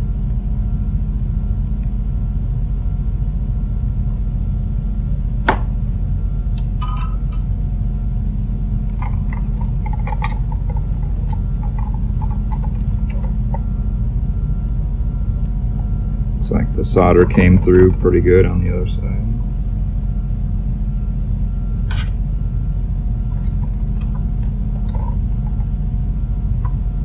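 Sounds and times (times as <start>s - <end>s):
low background hum: 0.0s - 27.0s
circuit board and wires rattling: 8.9s - 13.8s, 23.2s - 25.8s.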